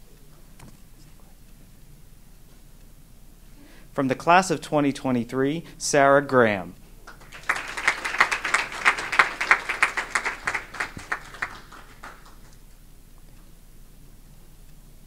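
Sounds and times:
group of people clapping: 7.0s - 12.6s.

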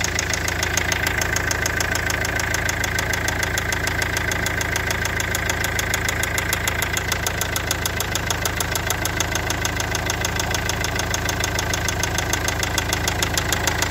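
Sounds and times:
diesel engine idling: 0.0s - 13.9s.

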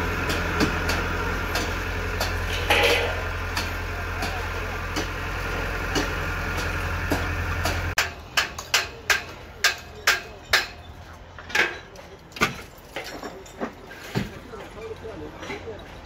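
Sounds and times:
bulldozer diesel engine running: 0.0s - 8.4s.

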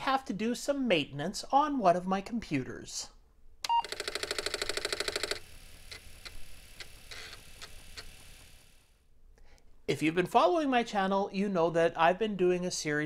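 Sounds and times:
rapid buzzy ticks: 3.9s - 8.6s.

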